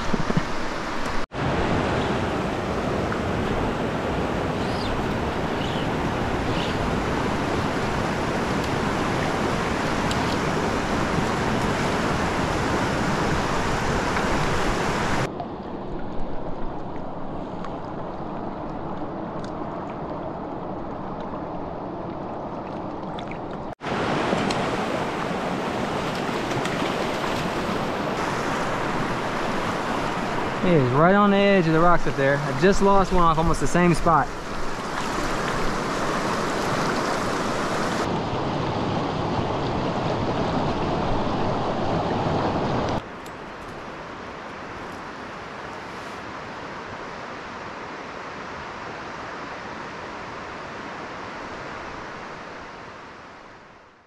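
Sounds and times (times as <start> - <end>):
water rushing over rocks: 0.0 - 49.5.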